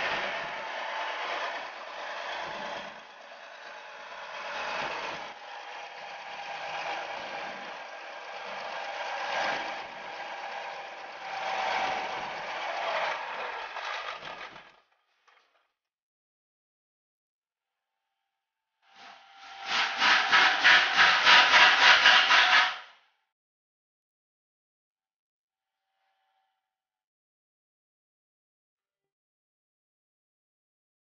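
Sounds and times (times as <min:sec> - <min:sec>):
diesel engine running: 0:00.0 - 0:14.4.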